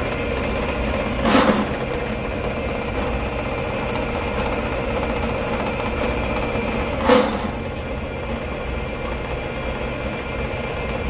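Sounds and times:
drain-cleaning machine running: 0:00.0 - 0:11.0
brief clatter: 0:07.0 - 0:07.7.

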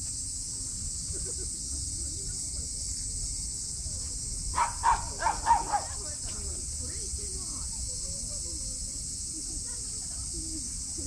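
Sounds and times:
insects droning: 0:00.0 - 0:11.0
dog barking: 0:04.6 - 0:06.0.

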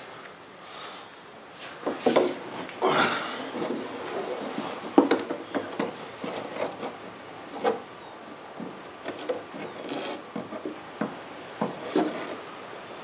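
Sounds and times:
wood scraping rub: 0:00.8 - 0:07.9, 0:09.0 - 0:10.8, 0:11.6 - 0:12.6
light wooden clicks and knocks: 0:03.5 - 0:07.9, 0:08.5 - 0:12.4.

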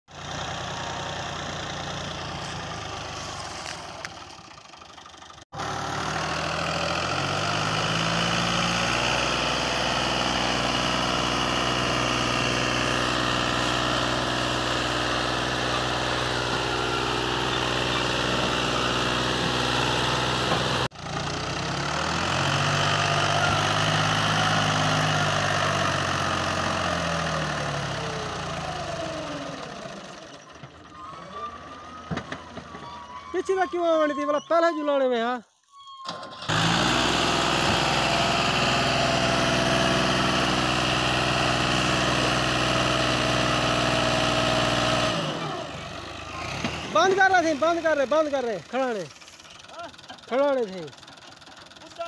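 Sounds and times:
tractor engine labouring: 0:00.1 - 0:52.0.

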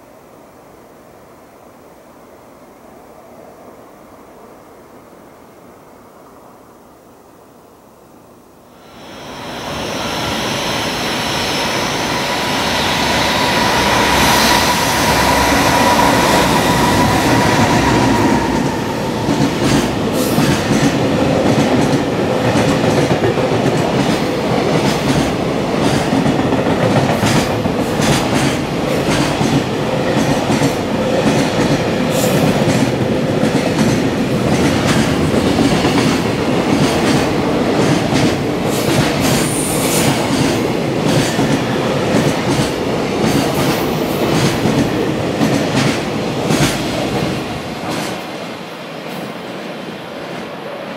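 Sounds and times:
steady whine: 0:08.9 - 0:20.2
train wheels clattering over rails: 0:09.8 - 0:48.4.

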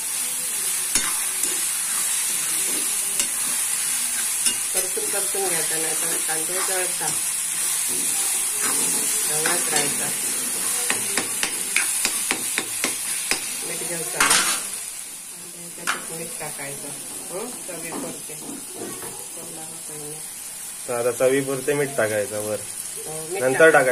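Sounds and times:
vegetables sizzling in oil: 0:00.0 - 0:23.9
steel spoon scraping a pan: 0:00.8 - 0:14.7.

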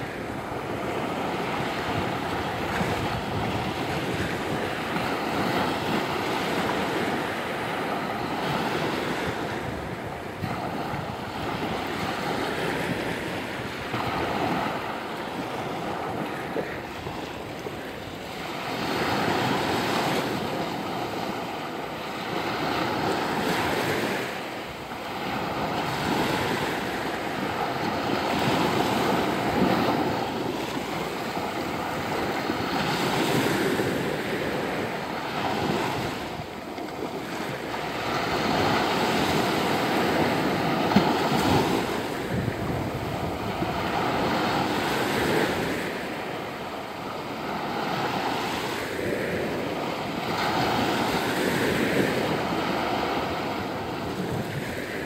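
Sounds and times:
sea waves breaking: 0:00.0 - 0:55.0.

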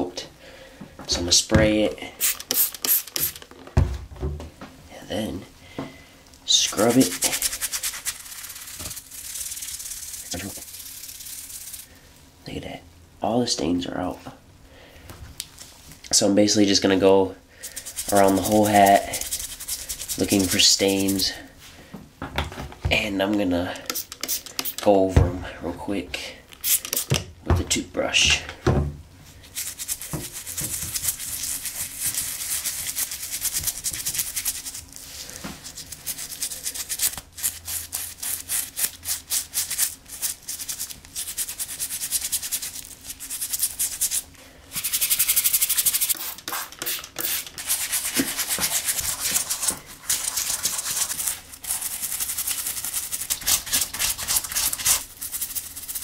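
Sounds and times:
toothbrush scrubbing fabric: 0:06.5 - 0:11.9, 0:17.6 - 0:21.4, 0:29.4 - 0:56.0.

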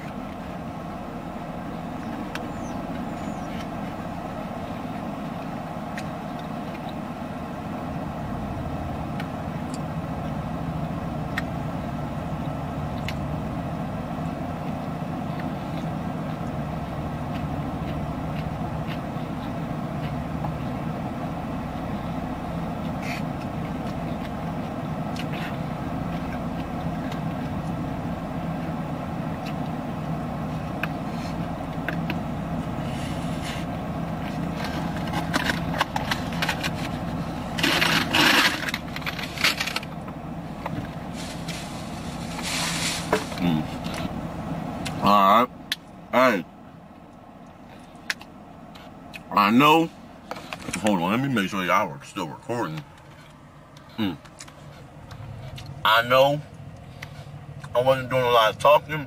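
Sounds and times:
car cabin engine hum: 0:00.0 - 0:59.0
clicks and rustles of eating: 0:33.4 - 0:44.2, 0:52.7 - 0:55.8.

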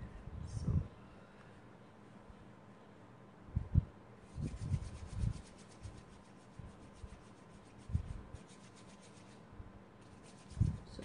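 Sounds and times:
hands rubbing clay: 0:04.4 - 0:11.0.

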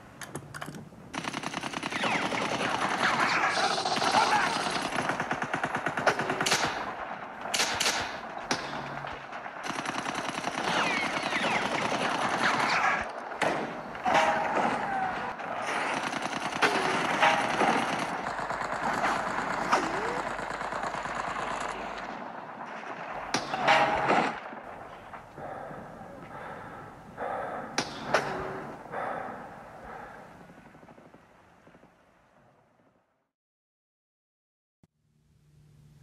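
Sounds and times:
machine-gun fire: 0:01.1 - 0:25.2
single gunshots cracking: 0:06.0 - 0:09.5.

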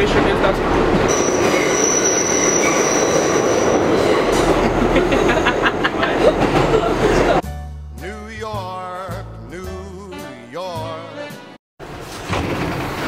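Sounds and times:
subway wheels rumbling on track: 0:00.0 - 0:07.4, 0:11.8 - 0:13.0
high wheel squeal: 0:01.1 - 0:04.8.

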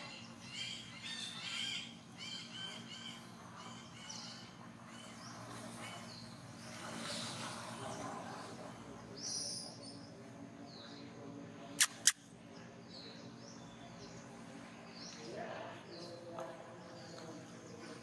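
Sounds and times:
sharp clicks: 0:11.8 - 0:12.2.

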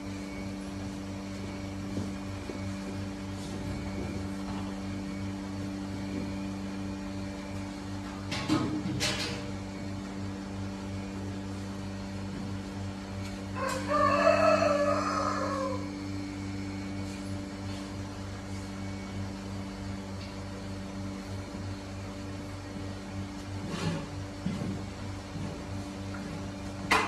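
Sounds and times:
steady low hum: 0:00.0 - 0:27.0
loud drawn-out animal call: 0:13.6 - 0:16.0.

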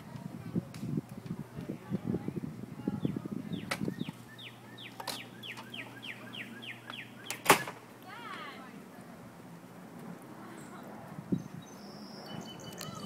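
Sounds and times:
low rumbling on microphone: 0:00.0 - 0:04.6
songbird whistling downslurred notes: 0:11.6 - 0:13.0.

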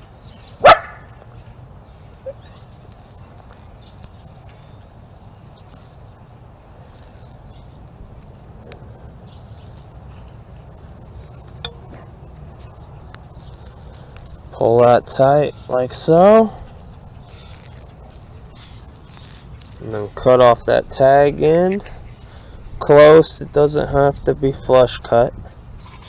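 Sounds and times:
outdoor background noise: 0:00.0 - 0:26.0
dog barking: 0:00.6 - 0:01.1.

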